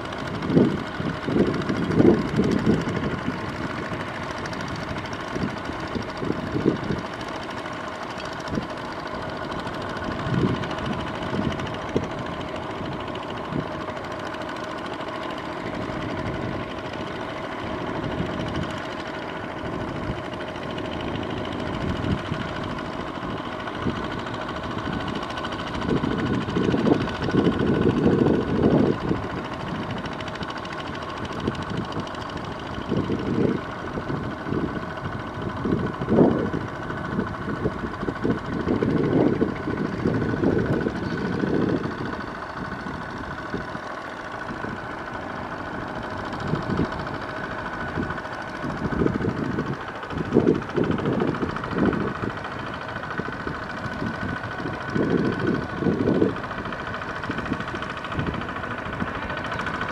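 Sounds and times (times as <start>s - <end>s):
diesel tractor engine running: 0.0s - 59.9s
wheels churning through mud: 0.0s - 59.9s
low rumbles: 31.1s - 59.9s.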